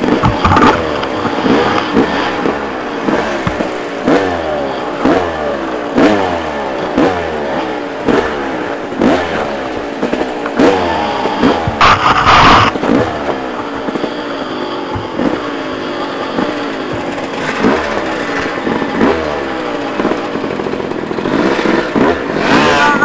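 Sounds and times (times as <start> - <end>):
motorcycle engine revving: 0.0 - 23.0
loud clattering burst: 8.0 - 14.1.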